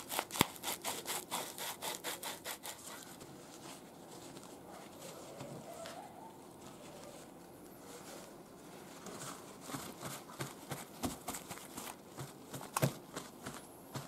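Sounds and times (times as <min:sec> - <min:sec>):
paper towel rustling and patting: 0:02.6 - 0:14.0.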